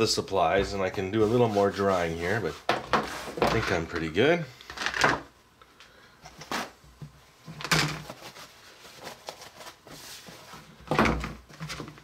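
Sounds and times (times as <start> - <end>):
plastic parts knocking and clattering: 7.5 - 8.2, 10.8 - 12.0.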